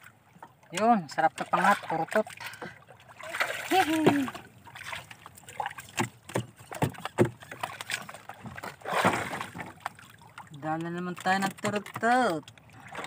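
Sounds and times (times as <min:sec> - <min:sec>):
water sloshing against boat: 0:00.0 - 0:13.0
loud splash: 0:03.2 - 0:05.8, 0:08.8 - 0:09.8
sharp knocks and taps: 0:05.9 - 0:07.4.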